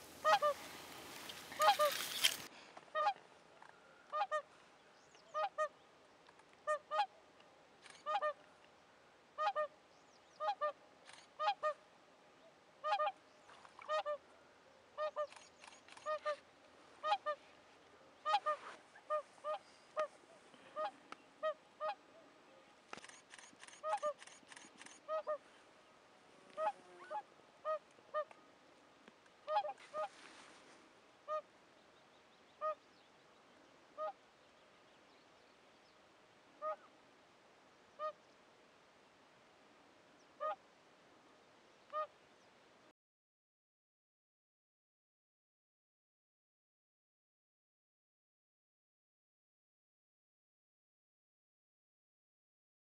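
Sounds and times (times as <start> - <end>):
swans trumpeting honks: 0.0 - 3.2, 18.2 - 20.1, 29.5 - 30.2.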